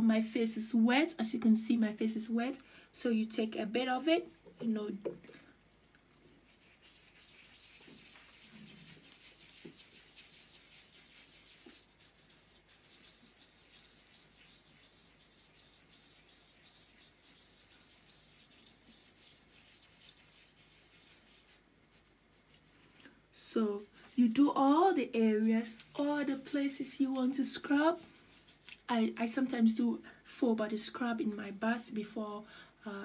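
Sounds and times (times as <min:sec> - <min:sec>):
fingers rubbing scrub on skin: 0:05.7 - 0:23.1, 0:23.8 - 0:28.9.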